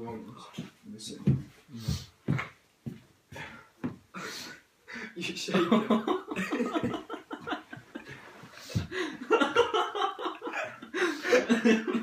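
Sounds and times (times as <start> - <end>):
young men laughing: 5.1 - 12.0.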